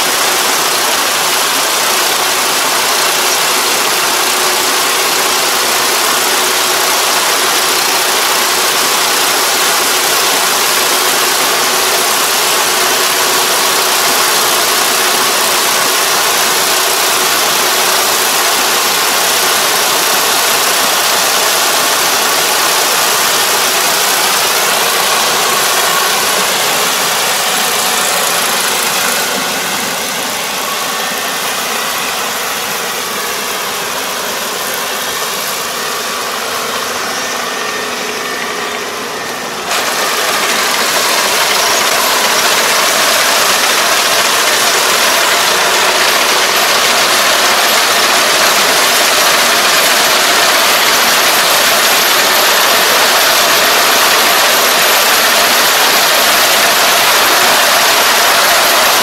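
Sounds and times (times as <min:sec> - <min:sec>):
combine harvester running: 0:00.0 - 0:59.0.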